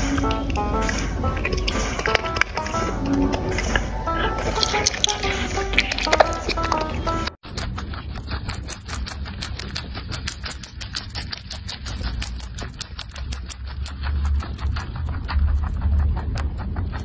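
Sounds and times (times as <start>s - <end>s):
low rumble: 0.0s - 8.0s, 12.5s - 17.0s
rabbit chewing: 0.0s - 17.0s.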